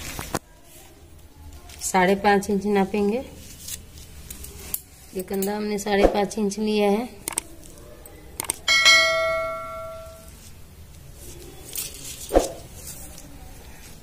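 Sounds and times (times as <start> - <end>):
quick clicks: 7.2 - 7.5, 8.4 - 8.6
bright bell ding: 8.7 - 10.3.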